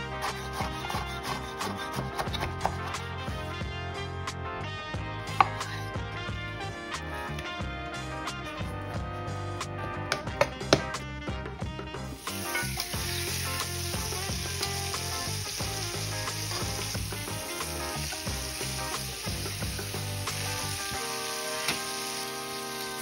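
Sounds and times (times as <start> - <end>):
background music: 0.0 - 23.0
chicken sizzling in oil: 12.1 - 23.0.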